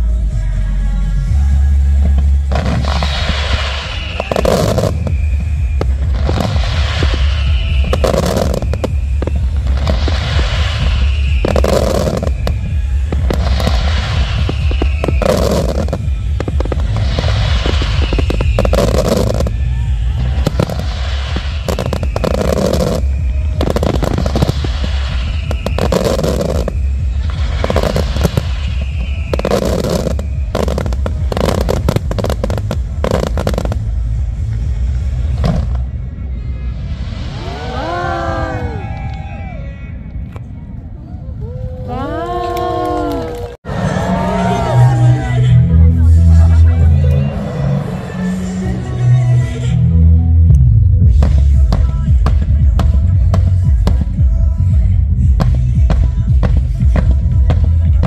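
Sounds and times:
loud music: 0.0 - 5.1, 5.8 - 35.8, 43.7 - 58.0
fireworks bursting and crackling: 1.7 - 40.5, 51.0 - 58.0.

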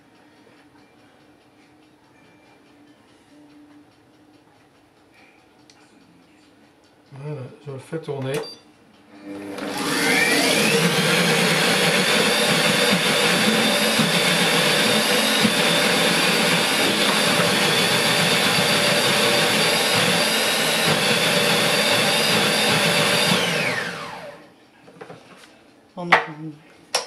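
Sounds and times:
food processor motor whine: 9.2 - 24.5.

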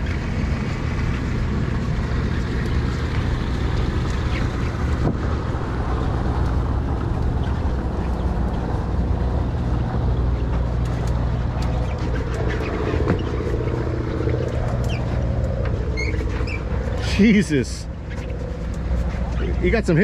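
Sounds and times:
boat engines droning: 0.0 - 20.0
water washing along hull: 0.0 - 20.0
wind on microphone: 1.4 - 17.0.

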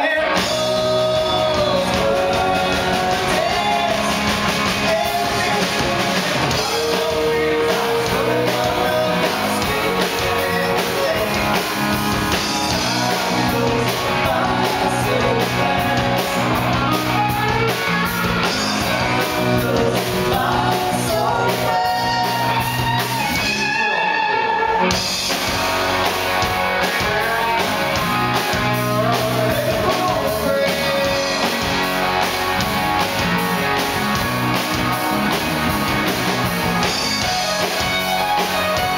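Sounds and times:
person singing: 0.0 - 11.7, 12.4 - 17.5, 18.5 - 31.6
live rock band playing: 0.0 - 38.9.

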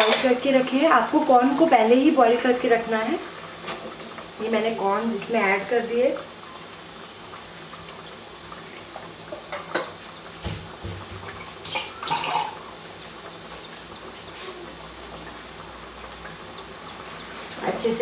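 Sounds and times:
curry bubbling in a pot: 0.7 - 18.0
thick gravy plopping: 7.6 - 17.6.

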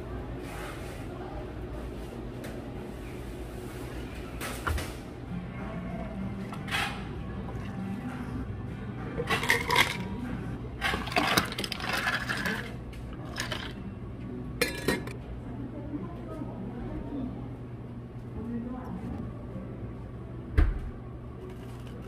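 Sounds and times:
ice cubes clinking into glasses: 9.2 - 10.2, 10.8 - 13.8, 14.6 - 15.1.

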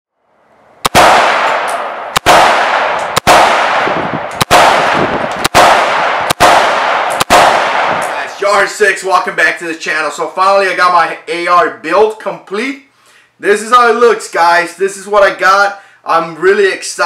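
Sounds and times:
rifle shots echoing: 0.8 - 8.3.

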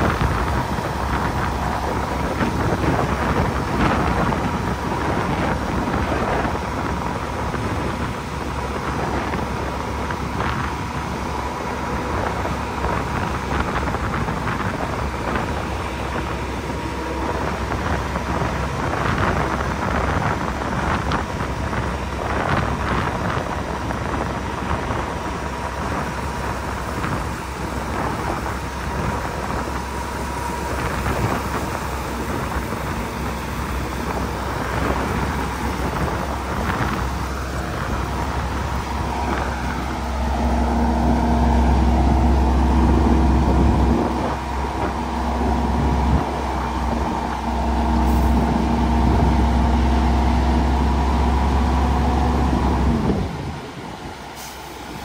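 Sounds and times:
diesel truck engine rumble: 0.0 - 55.0
gravel rushing out: 0.0 - 55.0
steady whine: 0.0 - 55.0.

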